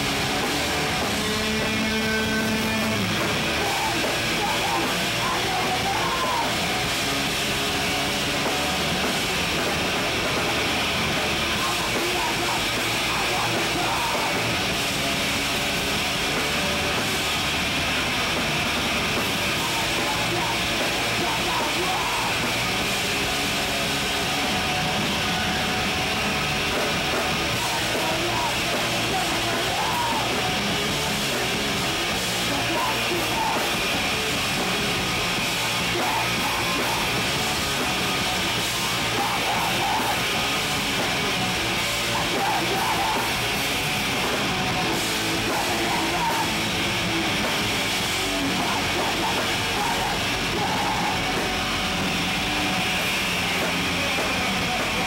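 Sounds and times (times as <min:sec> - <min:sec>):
live rock band playing: 0:00.0 - 0:55.0
singer yelling into microphone: 0:01.0 - 0:06.8, 0:11.5 - 0:14.6, 0:19.4 - 0:22.6, 0:27.5 - 0:31.2, 0:32.3 - 0:34.0, 0:38.9 - 0:40.6, 0:41.9 - 0:43.6, 0:45.1 - 0:47.3, 0:48.2 - 0:51.8.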